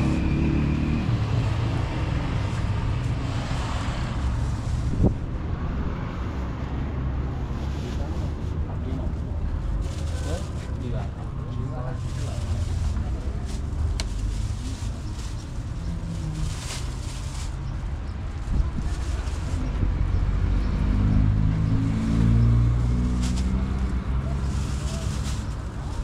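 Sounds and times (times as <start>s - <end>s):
vehicle engine rumble: 0.0s - 26.0s
plastic bag rustling: 7.4s - 19.8s, 22.7s - 26.0s.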